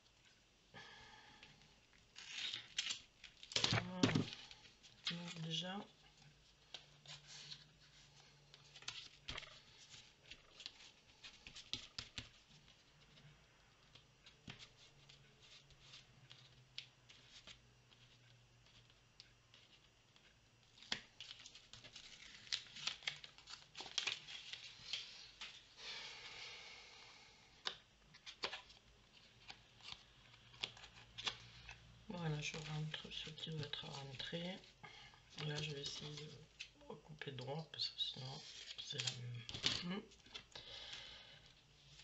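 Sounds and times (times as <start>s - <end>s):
paper rustling and crinkling: 2.2s - 25.6s, 28.1s - 31.7s, 35.3s - 36.8s, 38.4s - 40.6s.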